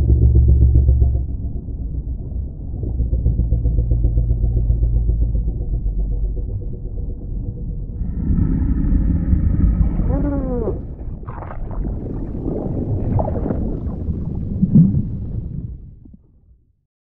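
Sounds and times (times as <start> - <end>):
deep underwater rumble: 0.0 - 16.8
whale-like moaning call: 8.0 - 11.9.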